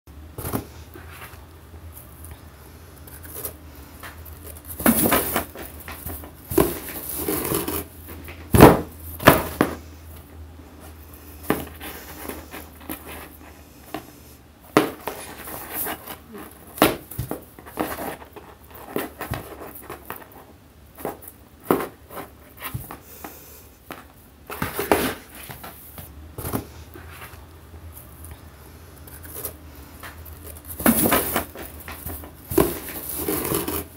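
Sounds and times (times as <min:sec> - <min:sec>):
cardboard box scraping and knocking: 0:04.0 - 0:09.8, 0:30.0 - 0:33.9.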